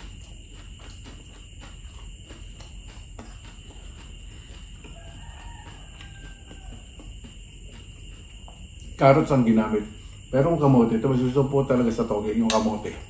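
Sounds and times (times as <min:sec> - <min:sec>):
chewing crunches and mouth clicks: 0:00.0 - 0:09.0.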